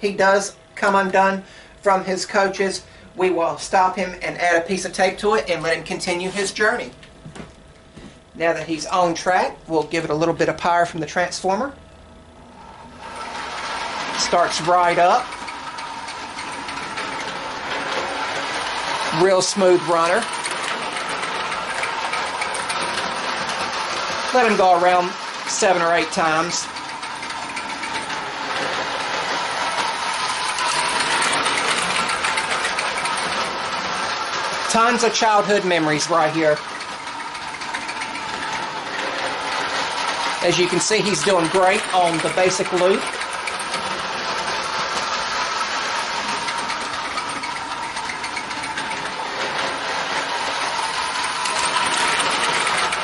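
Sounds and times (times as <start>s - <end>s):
toy train motor whine: 12.6s - 53.0s
wheels rattling on rails: 12.8s - 53.0s.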